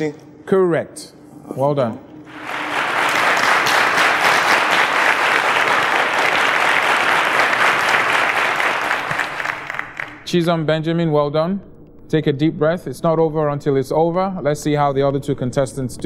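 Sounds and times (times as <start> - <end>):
studio audience applauding: 2.3 - 10.4.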